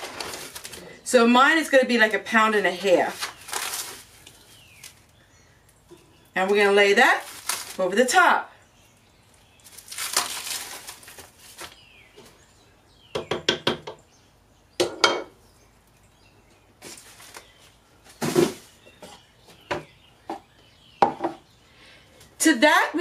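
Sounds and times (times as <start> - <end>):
plastic wrapping rustling: 0.0 - 1.0, 2.1 - 5.2, 6.5 - 8.0, 9.3 - 12.1, 16.8 - 18.8
knocks on crock and counter: 13.2 - 14.0.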